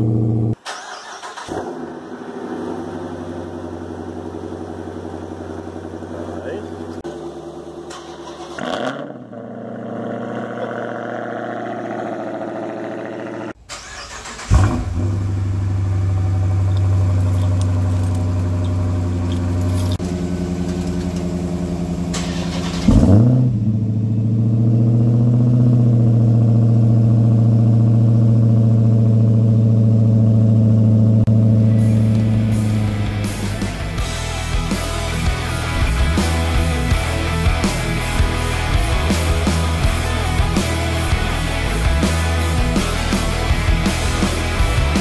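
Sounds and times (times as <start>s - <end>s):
car engine revving: 0.0s - 45.0s
car engine idling loudly: 2.2s - 8.0s, 26.1s - 45.0s.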